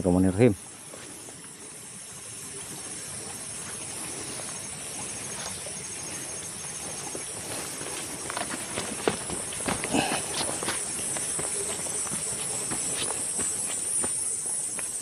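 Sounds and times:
high insect trill: 0.0 - 15.0
footsteps on dry leaves: 6.8 - 15.0.

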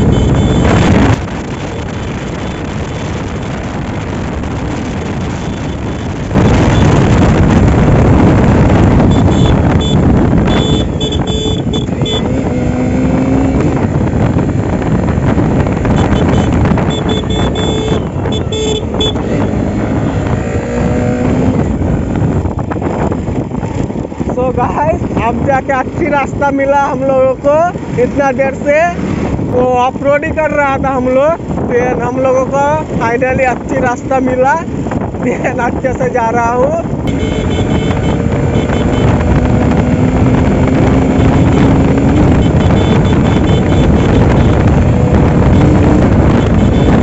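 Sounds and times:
motorcycle engine running: 0.0 - 24.3, 36.8 - 47.0
wind buffeting microphone: 0.0 - 47.0.

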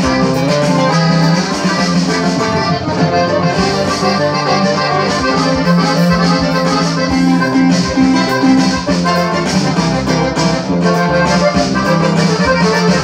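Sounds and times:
accordion melody: 0.0 - 13.0
strummed guitar chords and bass runs: 0.0 - 13.0.

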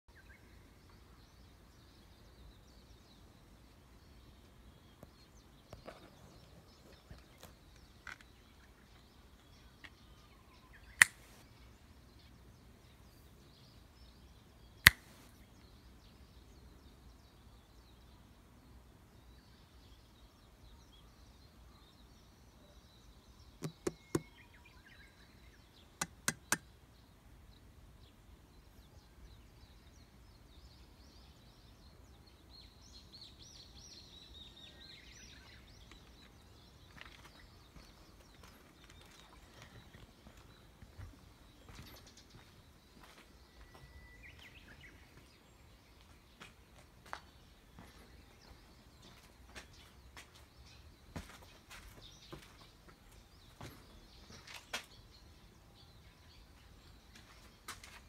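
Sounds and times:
sharp clicks: 11.0 - 11.4, 14.9 - 15.2, 23.6 - 24.3, 26.0 - 26.6.

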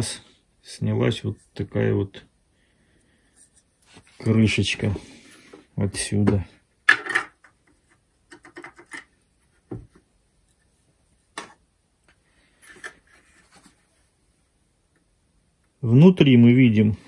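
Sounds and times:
plastic housing clicks and knocks: 8.3 - 9.1.

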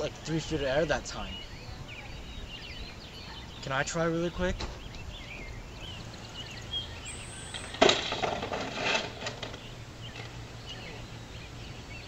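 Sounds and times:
birds chirping faintly: 0.0 - 12.0
bicycle rattling: 7.4 - 10.4.

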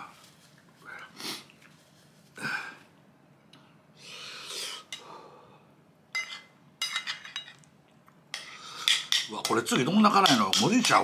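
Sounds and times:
spoon clinking on plate: 6.1 - 7.7.

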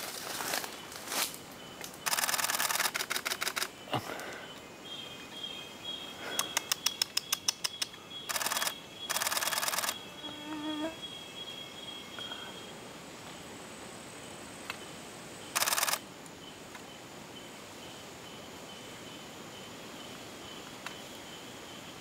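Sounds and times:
insects buzzing: 0.0 - 22.0
camera shutter burst: 2.0 - 3.7, 8.3 - 10.0, 15.5 - 16.0.

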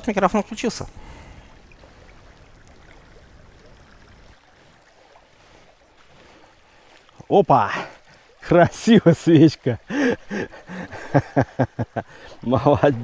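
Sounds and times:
river water flowing: 0.0 - 13.0.

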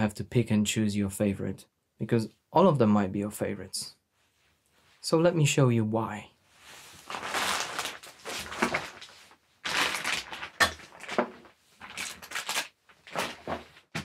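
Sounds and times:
plastic packaging rustling: 6.6 - 14.0.

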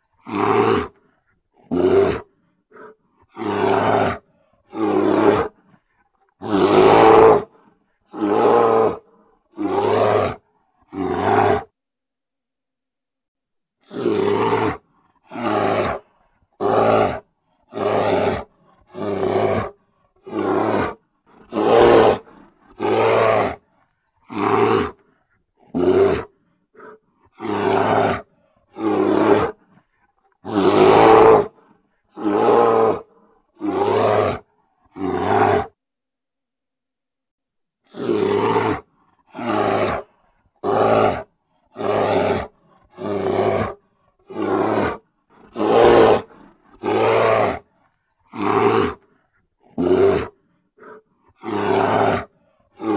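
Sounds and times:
bear vocalising: 14.0 - 23.6, 24.2 - 35.8, 37.9 - 47.7, 48.3 - 52.9.

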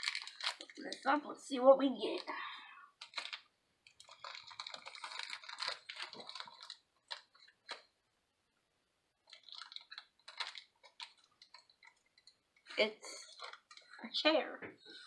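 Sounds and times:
packaging wrapper crinkling: 0.0 - 1.2, 3.0 - 7.9, 9.2 - 14.0.

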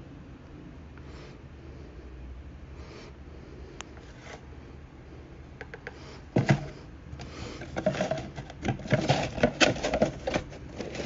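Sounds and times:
scraping and tapping on cardboard: 7.6 - 11.0.

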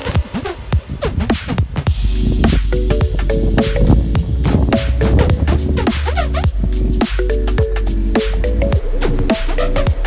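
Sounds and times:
electronic music with deep bass: 0.0 - 10.0
warbling synth run: 2.0 - 10.0.

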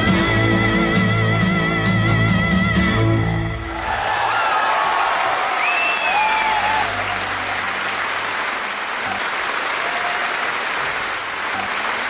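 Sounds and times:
large audience applauding: 3.6 - 12.0.

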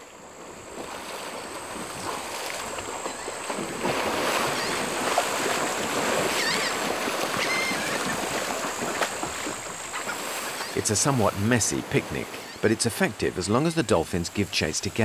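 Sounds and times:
water churning and splashing: 0.0 - 15.0
dolphin chirps: 4.4 - 4.9, 6.3 - 6.8, 7.4 - 8.2, 10.0 - 11.0, 12.0 - 12.8.

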